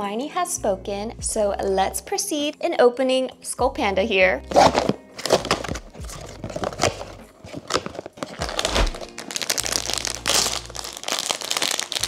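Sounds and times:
foil and plastic packaging crinkling: 0:04.5 - 0:12.0.

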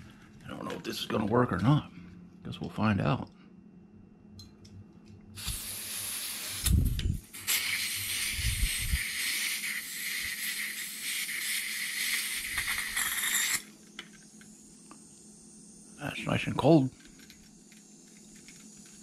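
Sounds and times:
butane gas hissing: 0:05.4 - 0:19.0.

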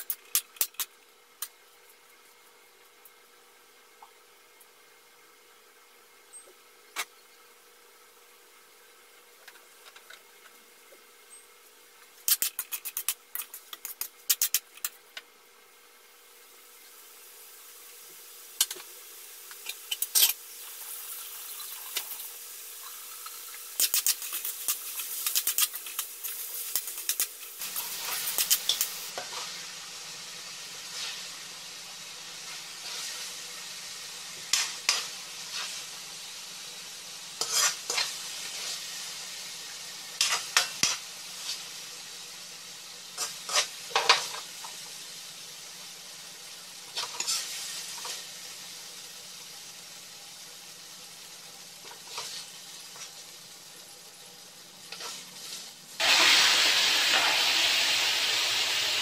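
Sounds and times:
food sizzling: 0:00.0 - 0:05.9, 0:07.8 - 0:59.0
metal spatula scraping a wok: 0:23.8 - 0:29.6, 0:32.4 - 0:33.3, 0:34.5 - 0:35.9, 0:37.4 - 0:38.9, 0:40.2 - 0:41.7, 0:43.2 - 0:44.4, 0:47.0 - 0:48.2, 0:51.9 - 0:53.1, 0:54.9 - 0:57.5.

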